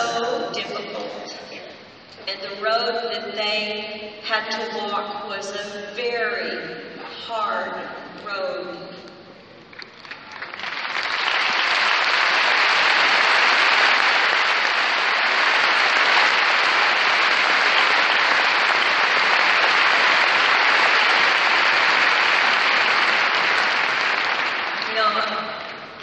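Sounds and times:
large audience applauding: 9.8 - 26.0.

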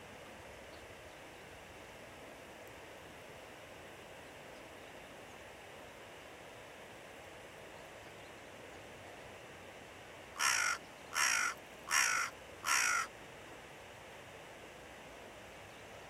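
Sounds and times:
crow cawing: 10.4 - 13.1.

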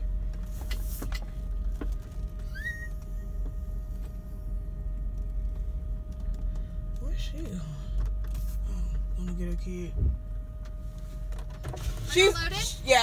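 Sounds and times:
car idling from inside: 0.0 - 13.0
short rising chirp: 2.5 - 3.0.

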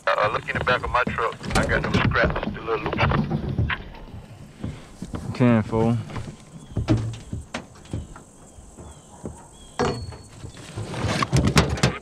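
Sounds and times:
items clunking in metal toolbox: 5.3 - 12.0.

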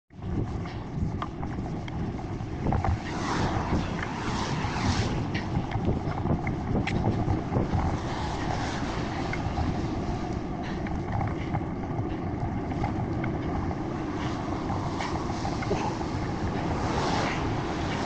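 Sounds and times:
wind buffeting microphone: 0.1 - 18.0
small clicks and rattles: 5.5 - 18.0.

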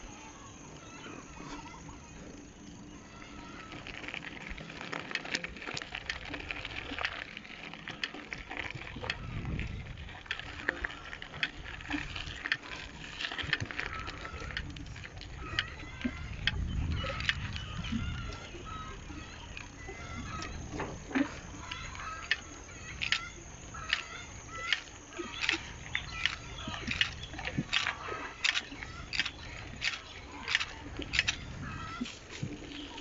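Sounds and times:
bicycle tyres crunching on gravel: 0.0 - 33.0
small irregular clicks: 0.0 - 33.0
wind rumble on microphone: 5.5 - 33.0.

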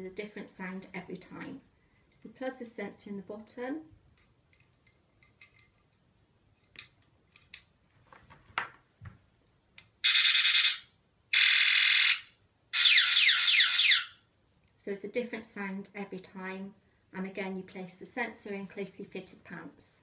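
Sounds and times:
electronic alarm bursts: 10.0 - 14.2.

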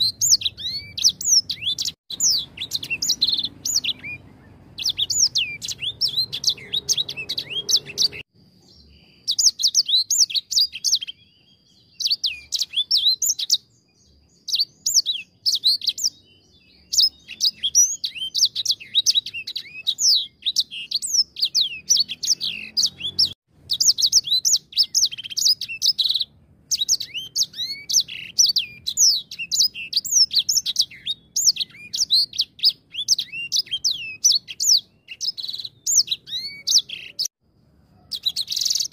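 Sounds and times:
canary singing chirps and trills: 0.0 - 38.9.

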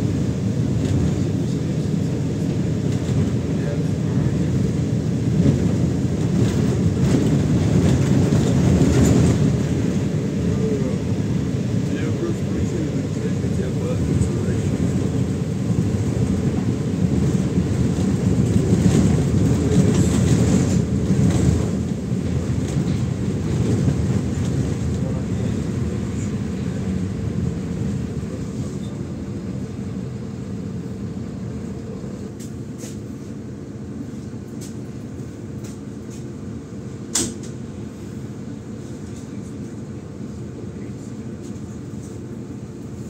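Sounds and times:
bus engine and road rumble: 0.0 - 43.0.

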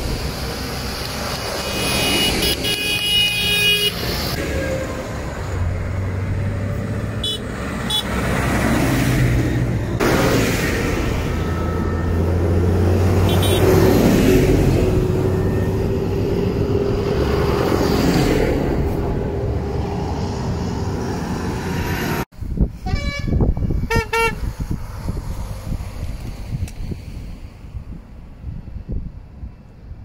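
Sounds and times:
diesel tractor engines: 0.0 - 30.0
vehicle horn toots: 1.7 - 4.8, 7.2 - 8.2, 13.2 - 13.8, 22.8 - 24.4.

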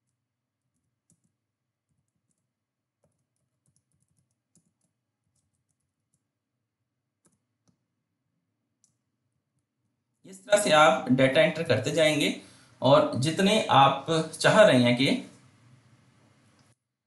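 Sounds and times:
faint keyboard typing: 0.0 - 6.4, 7.2 - 10.2.

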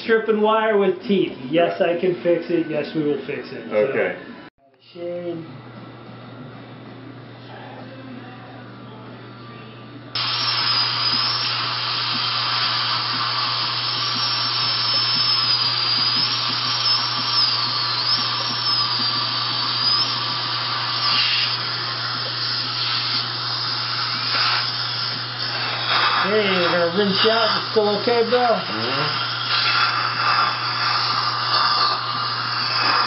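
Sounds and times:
dental drill whining: 10.2 - 33.0
suction rushing: 10.2 - 33.0.

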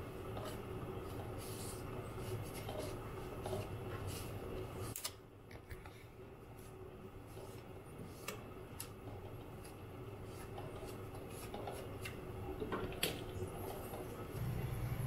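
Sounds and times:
paper towel rubbing kelp: 0.4 - 5.0.

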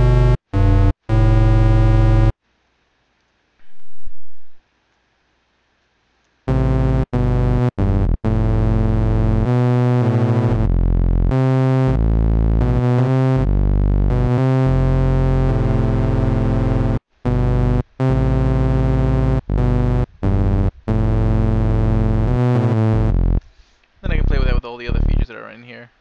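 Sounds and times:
low synthesizer notes: 6.5 - 25.3.

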